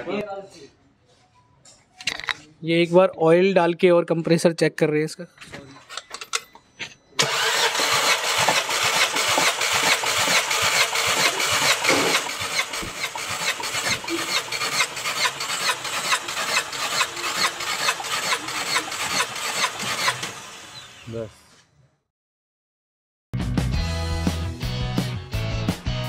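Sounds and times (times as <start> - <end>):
engine cranked by starter motor: 7.2 - 21.3.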